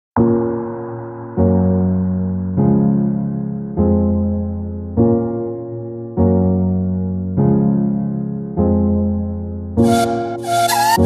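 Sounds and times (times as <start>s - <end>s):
soft electric piano chords: 0.2s - 10.4s.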